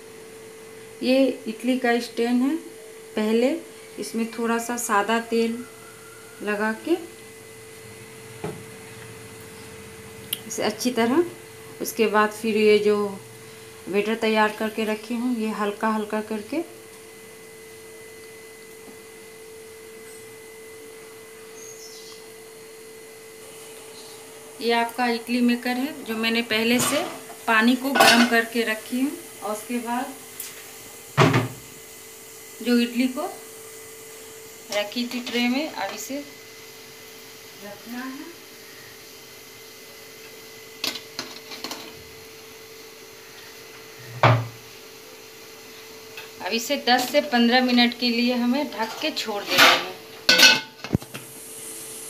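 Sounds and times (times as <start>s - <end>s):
steady even hum: 0.0s - 52.0s
metal clinking against pot: 50.3s - 50.8s.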